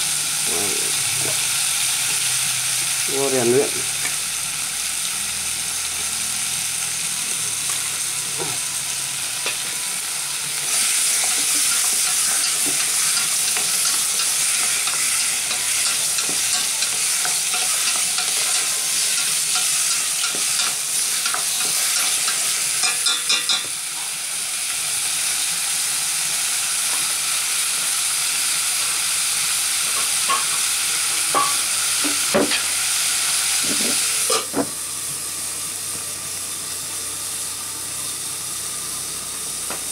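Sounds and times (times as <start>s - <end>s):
pot of vegetables sizzling: 0.0s - 39.9s.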